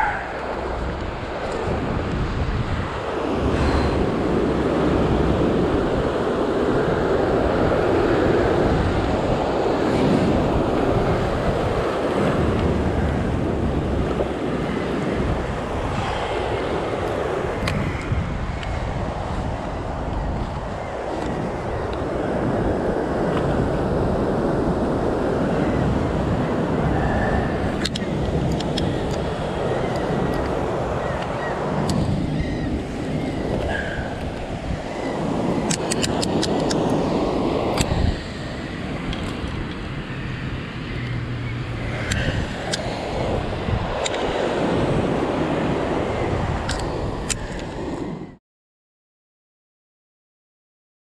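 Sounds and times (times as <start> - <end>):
ocean surf washing over rocks: 0.0 - 48.2
wind rumbling on microphone: 0.0 - 48.4
sharp clicks: 35.6 - 36.9.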